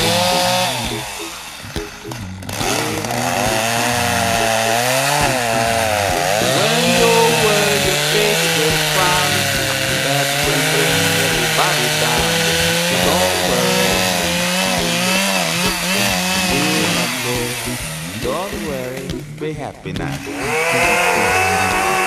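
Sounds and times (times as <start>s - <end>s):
chainsaw cutting wood: 0.0s - 19.1s, 20.2s - 22.0s.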